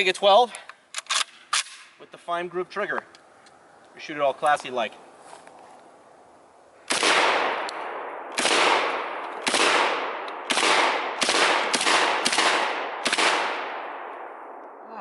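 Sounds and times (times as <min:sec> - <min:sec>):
shotgun shots with echo: 0:06.9 - 0:14.1.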